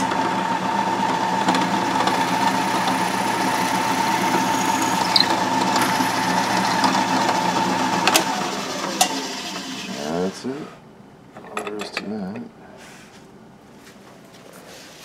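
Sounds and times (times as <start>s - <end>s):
drill press motor whine: 0.0s - 10.0s
drill bit boring into wood: 1.0s - 10.0s.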